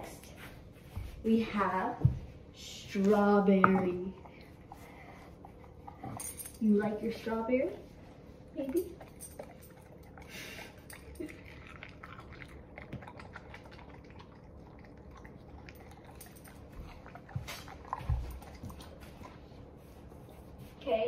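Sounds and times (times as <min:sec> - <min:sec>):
dog chewing wetly: 0:09.0 - 0:20.3.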